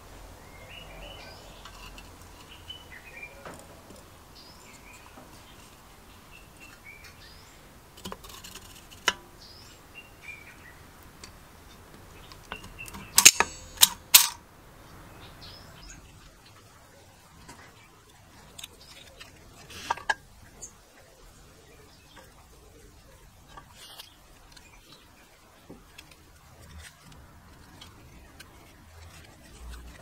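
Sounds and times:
birdsong chirps: 0:00.0 - 0:14.1, 0:14.7 - 0:30.0
metal clicks: 0:12.3 - 0:14.4.

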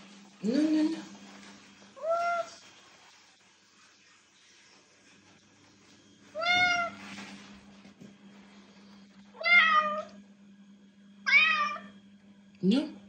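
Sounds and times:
cat meowing: 0:09.4 - 0:10.1, 0:11.3 - 0:11.9.

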